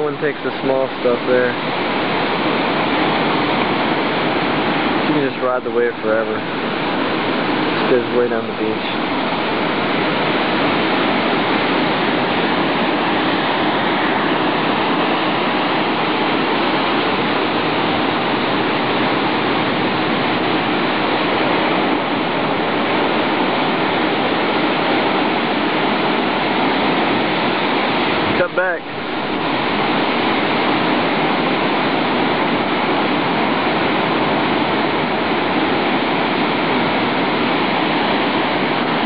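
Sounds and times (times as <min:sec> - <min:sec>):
ocean surf rushing: 0:00.0 - 0:39.0.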